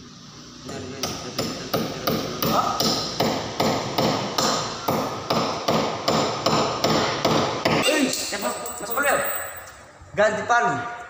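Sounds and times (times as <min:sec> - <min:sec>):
hammer driving a nail: 0:00.7 - 0:08.4.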